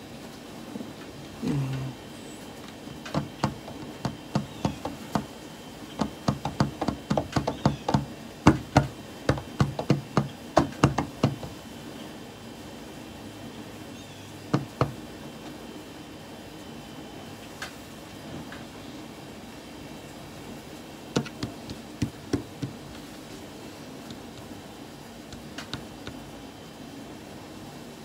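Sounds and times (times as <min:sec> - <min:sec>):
fingers tapping on a tabletop: 0:03.0 - 0:05.3, 0:06.0 - 0:11.6, 0:14.5 - 0:15.0, 0:21.2 - 0:23.0, 0:25.3 - 0:26.2.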